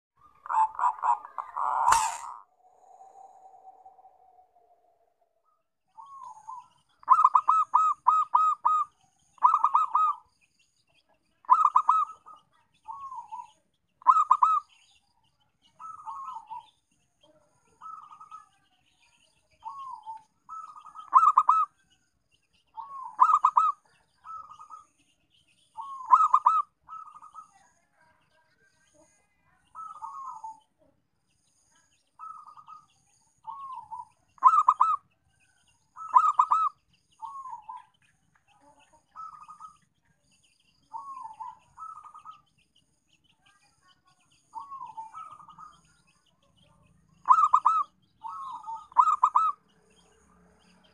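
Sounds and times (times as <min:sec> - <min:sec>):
dove cooing: 0:00.2 - 0:04.8, 0:06.0 - 0:10.2, 0:11.5 - 0:14.6, 0:15.8 - 0:16.6, 0:19.6 - 0:21.7, 0:22.8 - 0:24.8, 0:25.8 - 0:27.5, 0:29.8 - 0:30.6, 0:33.4 - 0:35.0, 0:36.0 - 0:37.8, 0:40.9 - 0:42.4, 0:44.6 - 0:45.8, 0:47.2 - 0:49.6.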